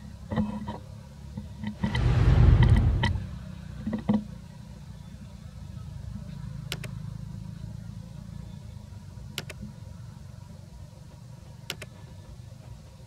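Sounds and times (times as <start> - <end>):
low steady rumble: 0.0 - 13.0
double mouse clicks: 6.7 - 7.0, 9.4 - 9.7, 11.7 - 11.9.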